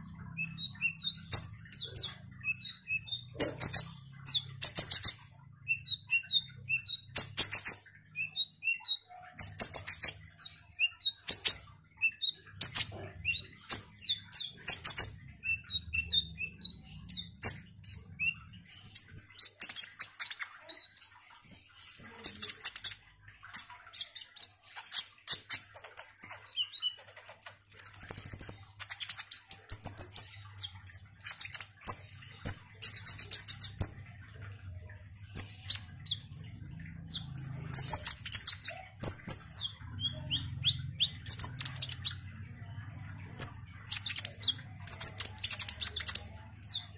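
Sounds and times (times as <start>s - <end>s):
sunbird singing chattering song: 26.2s - 28.6s.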